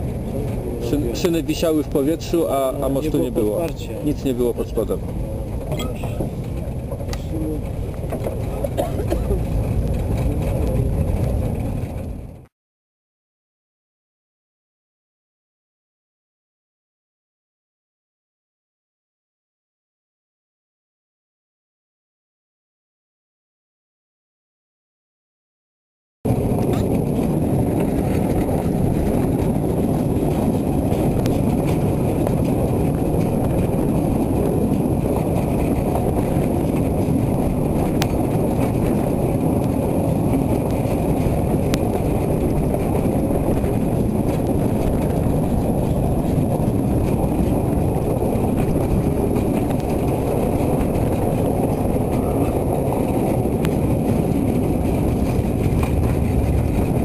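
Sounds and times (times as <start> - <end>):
train wheels rumbling on track: 0.0 - 12.5, 26.3 - 57.0.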